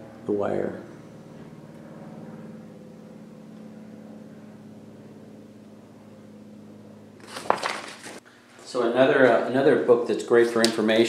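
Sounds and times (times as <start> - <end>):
small motor humming: 0.0 - 7.4
paper rustling: 7.2 - 8.2.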